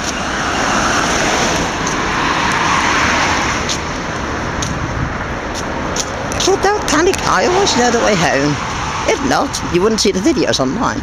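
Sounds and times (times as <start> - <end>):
car tyre hiss passing: 0.0 - 6.3
traffic hum: 0.0 - 11.0.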